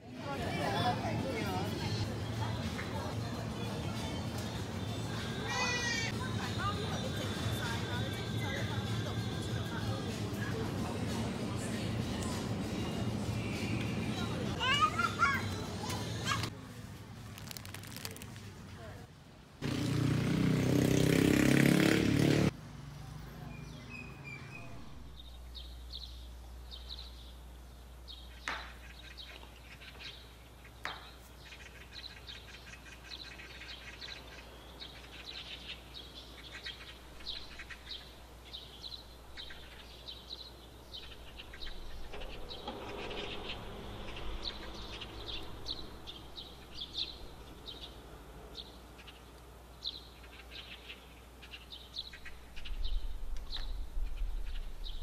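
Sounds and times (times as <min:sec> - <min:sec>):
small birds chirping: 0:17.3 - 0:18.4, 0:23.2 - 0:55.0.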